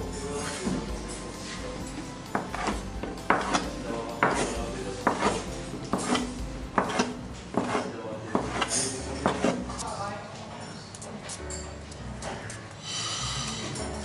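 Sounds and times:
metal scraper clacking on wooden worktop: 2.3s - 9.6s.

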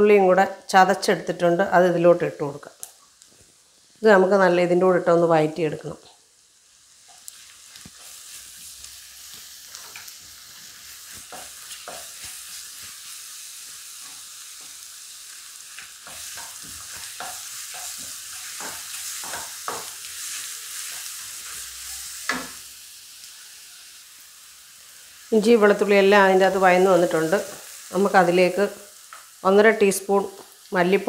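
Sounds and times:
vegetables sizzling in a pan: 0.0s - 31.0s.

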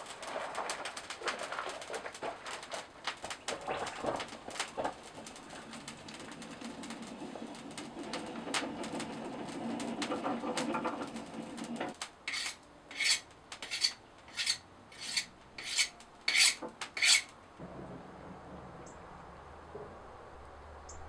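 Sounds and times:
tool scraping steel knife blade: 12.3s - 17.3s
low rumbling noise: 17.5s - 21.0s.

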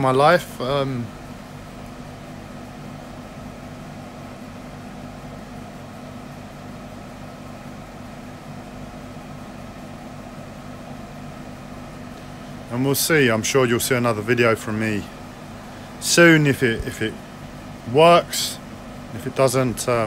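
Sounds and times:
machine hum: 0.0s - 20.0s.

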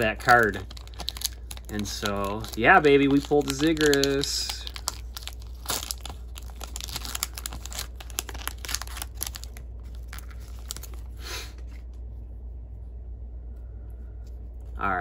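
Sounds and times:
foil wrapper tearing and crinkling: 0.0s - 11.2s.

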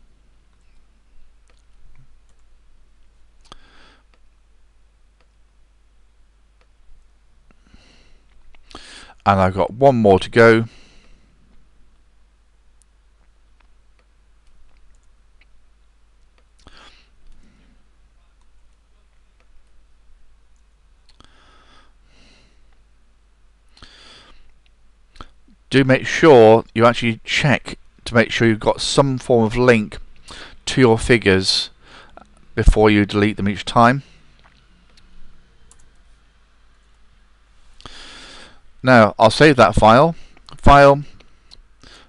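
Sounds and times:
computer mouse and keyboard clicks: 34.4s - 36.0s.

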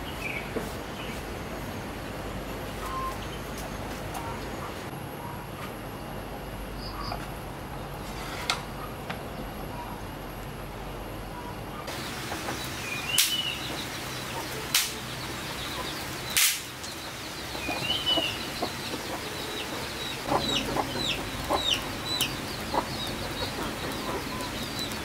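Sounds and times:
bird chirps: 2.8s - 3.5s, 11.4s - 25.0s
dry sticks snapping: 14.7s - 15.0s, 16.4s - 16.7s.

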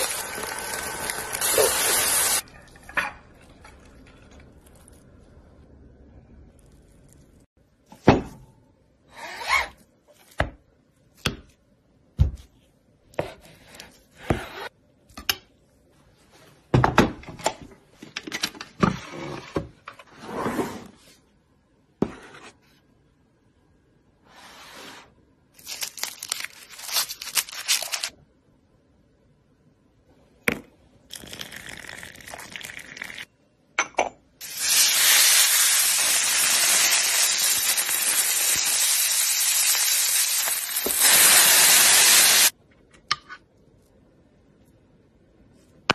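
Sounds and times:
meat sizzling in a frying pan: 0.0s - 2.4s, 34.4s - 42.5s
food packaging rustling: 25.6s - 28.2s.

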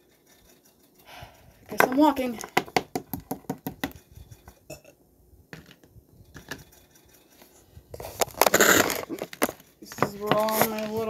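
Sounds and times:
plastic toy tapping on tabletop: 1.8s - 4.0s.

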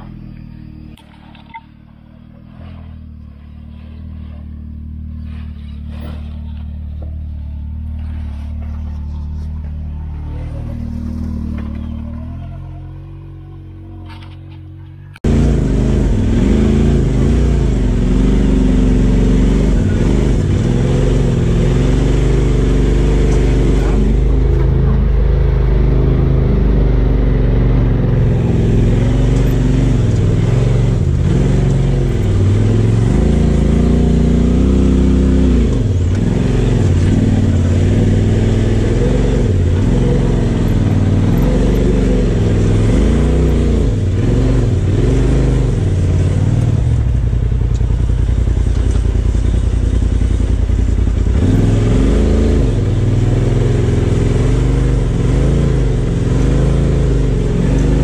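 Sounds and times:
engine revving: 0.0s - 58.0s.

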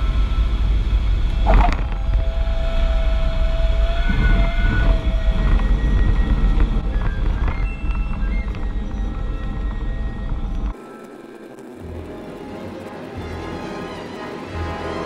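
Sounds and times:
light aircraft engine rumbling: 0.0s - 15.0s
background music tones: 5.0s - 15.0s.

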